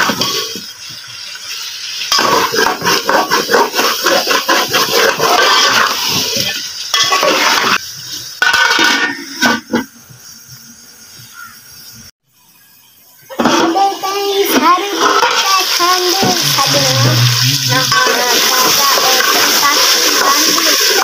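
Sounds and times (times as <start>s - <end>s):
spoon scraping metal pot: 2.1s - 6.0s, 15.0s - 21.0s.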